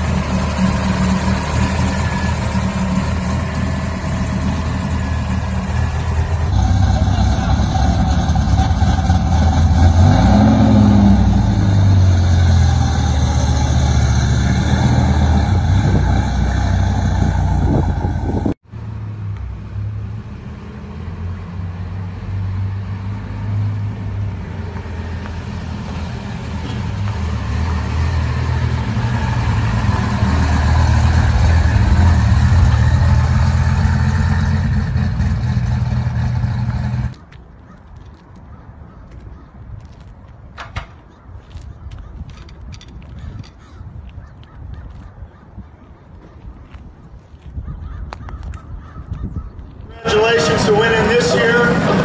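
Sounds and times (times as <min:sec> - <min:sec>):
car engine idling: 0:00.0 - 0:09.9, 0:25.5 - 0:37.1
car driving off: 0:00.0 - 0:37.2, 0:49.9 - 0:52.0.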